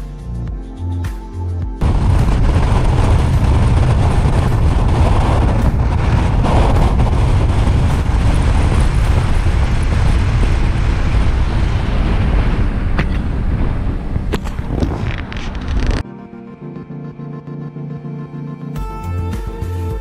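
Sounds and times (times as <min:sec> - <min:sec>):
car road noise: 0:01.8 - 0:16.0
wind buffeting microphone: 0:01.8 - 0:16.0.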